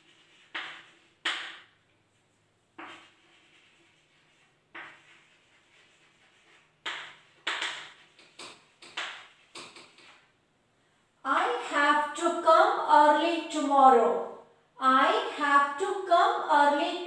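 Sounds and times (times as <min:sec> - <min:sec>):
chalk scratching on a chalkboard: 0:00.0 - 0:10.3
woman speaking: 0:11.2 - 0:17.0.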